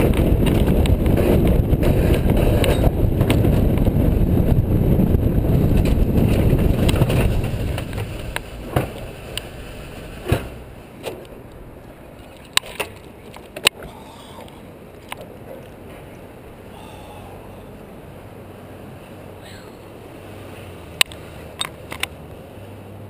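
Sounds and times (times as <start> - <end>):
wind on microphone: 0.0 - 10.6
sled clacking on track: 0.0 - 11.3
sled rushing rumble on rail: 0.0 - 12.2.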